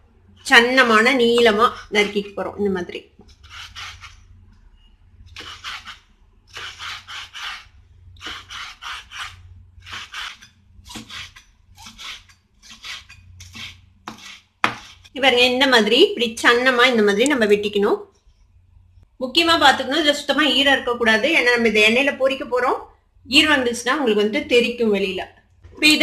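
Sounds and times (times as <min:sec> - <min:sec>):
knife cutting on wooden board: 0:03.2 - 0:04.2, 0:05.3 - 0:15.1.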